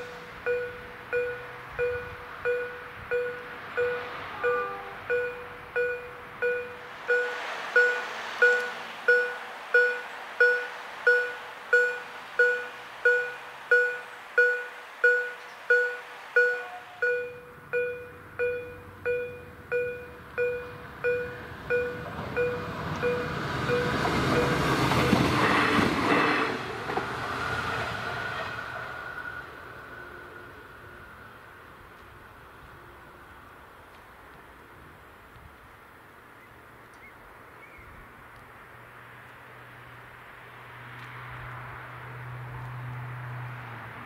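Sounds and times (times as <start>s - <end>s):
level crossing bell ringing: 0.0s - 24.6s
train rumble: 0.0s - 36.3s.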